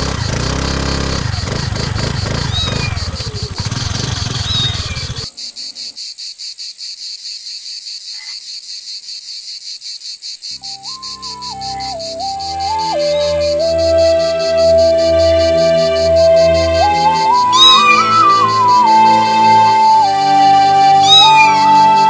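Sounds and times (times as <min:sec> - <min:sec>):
crickets chirping: 0:00.0 - 0:22.0
soft melody: 0:10.6 - 0:22.0.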